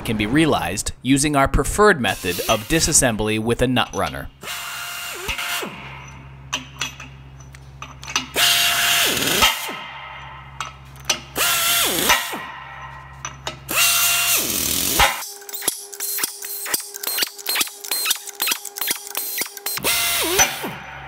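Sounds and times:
nut runner whining: 0:13.6 - 0:20.7
metallic clicks: 0:14.9 - 0:20.5.

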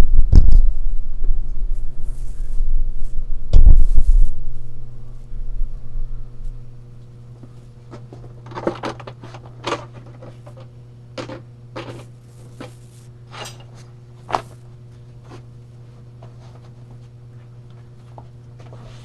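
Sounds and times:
steady low hum: 0:00.0 - 0:19.0
rustles and knocks of welding gear: 0:07.4 - 0:15.5.

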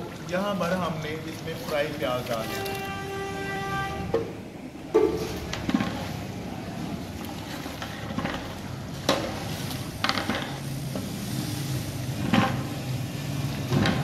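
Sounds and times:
masala sizzling: 0:05.1 - 0:14.0.

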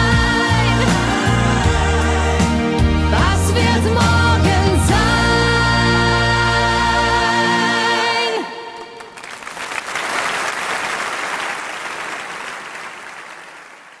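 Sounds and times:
audience applause: 0:09.0 - 0:14.0.

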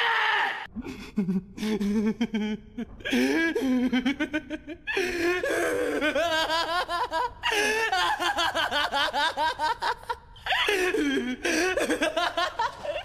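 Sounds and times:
man laughing: 0:00.9 - 0:10.2.

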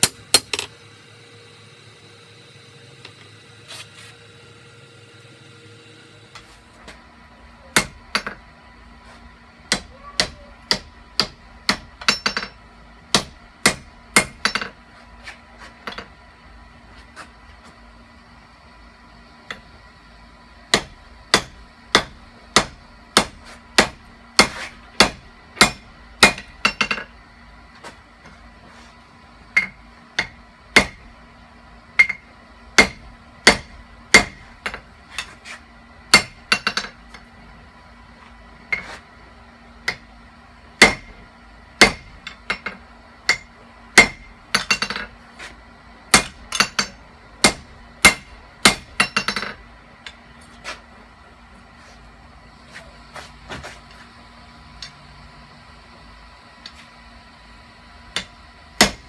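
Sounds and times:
hammer striking steel on anvil: 0:07.7 - 0:08.4, 0:09.7 - 0:14.8, 0:20.7 - 0:27.1, 0:29.5 - 0:31.0, 0:32.0 - 0:35.3, 0:36.1 - 0:37.3, 0:39.8 - 0:40.1, 0:40.8 - 0:41.2, 0:41.8 - 0:45.2, 0:46.1 - 0:50.2, 0:58.1 - 0:59.0.

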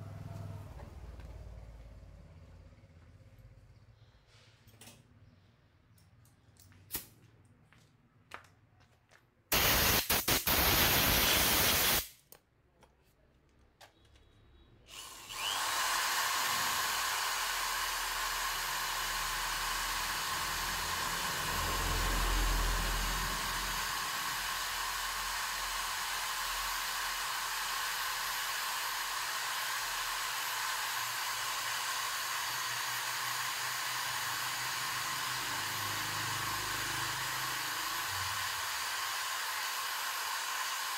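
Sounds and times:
electric drill whirring: 0:09.5 - 0:12.1, 0:14.9 - 0:40.9.

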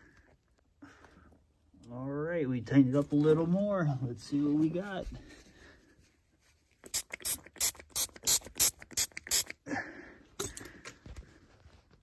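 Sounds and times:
spray bottle squirting: 0:06.8 - 0:09.6.

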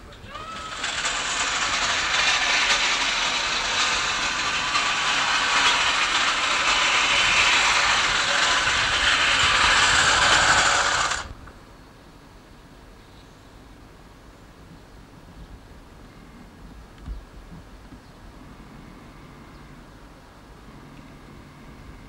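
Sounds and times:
rasping mechanical noise: 0:00.2 - 0:11.4.

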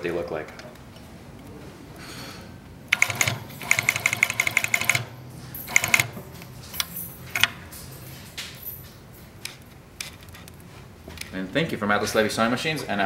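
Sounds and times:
sewing machine stitching leather: 0:02.9 - 0:05.1, 0:05.7 - 0:06.2.

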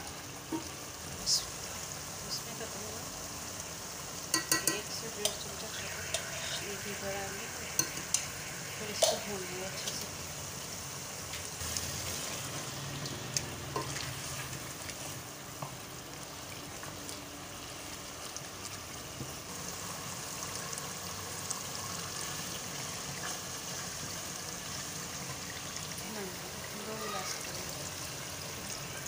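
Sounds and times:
meat and potatoes sizzling: 0:00.0 - 0:29.0
spoon clicking against pot: 0:04.3 - 0:05.4, 0:07.8 - 0:08.3.

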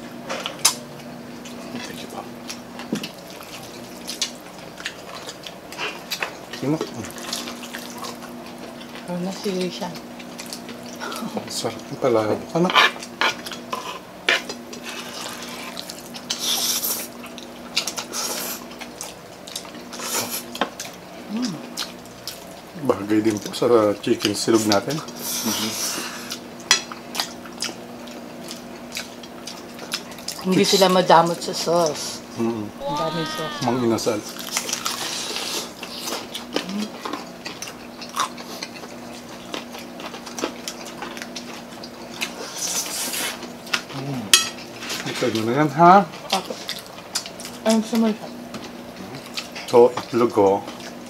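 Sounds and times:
chewing and mouth smacks: 0:01.4 - 0:09.1, 0:09.9 - 0:11.0, 0:13.0 - 0:21.0, 0:21.6 - 0:22.7, 0:24.2 - 0:30.5, 0:34.3 - 0:43.9, 0:46.1 - 0:47.6, 0:48.5 - 0:51.0
wet chewing and lip smacks: 0:26.3 - 0:30.4, 0:46.2 - 0:47.6, 0:48.5 - 0:49.8.

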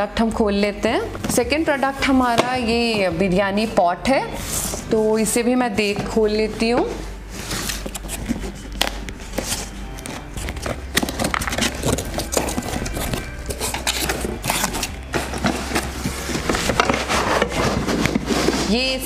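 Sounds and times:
cardboard flaps scraping and rustling: 0:06.9 - 0:18.9
packing tape peeling: 0:07.4 - 0:18.6.

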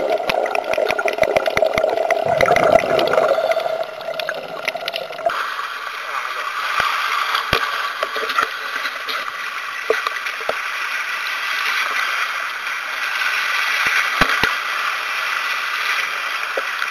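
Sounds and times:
sharp clicks and pops: 0:00.2 - 0:03.5, 0:04.1 - 0:05.4, 0:13.8 - 0:14.6.

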